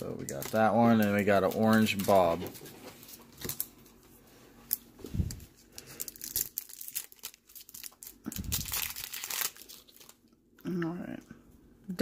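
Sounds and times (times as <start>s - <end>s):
foil wrapper crinkling and tearing: 0.3s - 2.4s, 4.7s - 10.3s.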